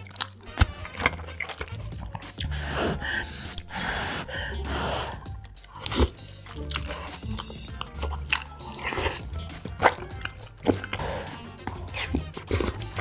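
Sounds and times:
breathy puffs of air: 0:02.4 - 0:05.4, 0:10.8 - 0:11.6.

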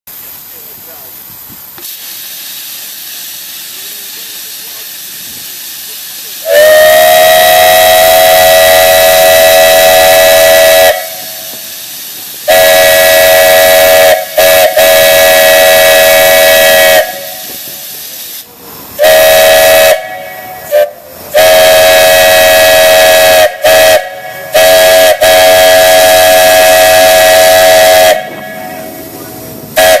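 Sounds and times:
steam hissing: 0:00.1 - 0:30.0
steam whistle blasts: 0:06.4 - 0:11.8, 0:12.4 - 0:17.9, 0:19.0 - 0:29.1, 0:29.8 - 0:30.0.

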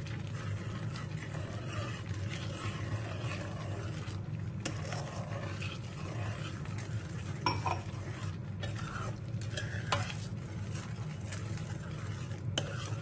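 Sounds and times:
spoon stirring and scraping pan: 0:00.0 - 0:13.0
spoon clinking against pan: 0:07.4 - 0:07.8.

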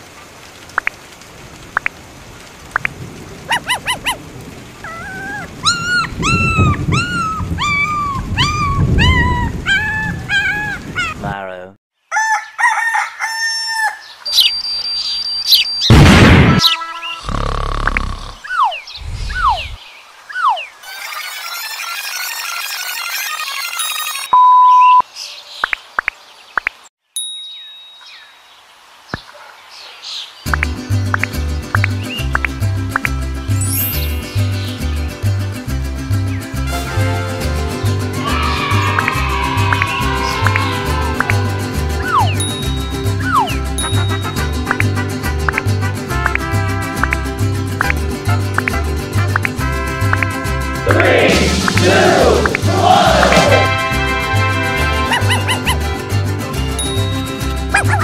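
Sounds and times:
steady rain: 0:00.0 - 0:11.7, 0:28.6 - 0:57.7
puppy whimpering and whining: 0:04.8 - 0:11.2
high censoring beep: 0:24.3 - 0:25.0
chime ding: 0:27.2 - 0:28.2, 0:42.4 - 0:44.5, 0:56.8 - 0:57.6.

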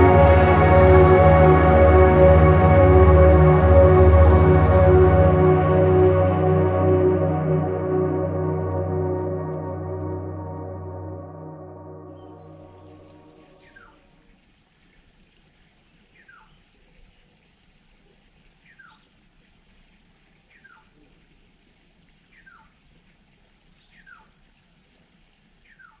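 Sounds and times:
faint background noise: 0:00.0 - 0:26.0.

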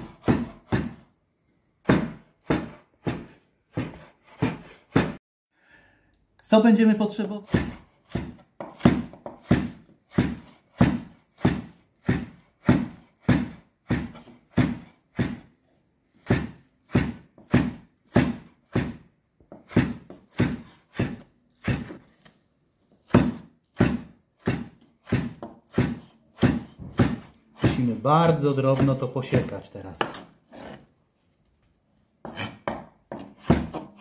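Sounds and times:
knife chopping on wooden board: 0:00.0 - 0:01.1, 0:01.8 - 0:05.2, 0:07.4 - 0:15.5, 0:16.1 - 0:30.8, 0:32.2 - 0:34.0.

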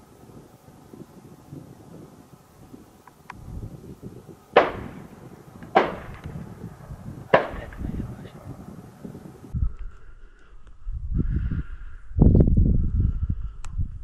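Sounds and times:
low wind rumble: 0:00.0 - 0:14.0
gunshots with echo: 0:04.6 - 0:06.3, 0:07.3 - 0:07.8.

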